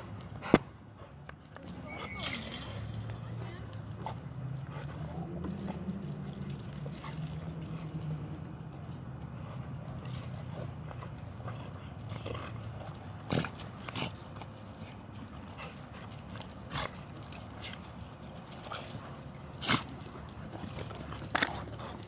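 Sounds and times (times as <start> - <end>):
dogs growling: 9.3 - 22.0
dogs snapping: 16.5 - 22.0.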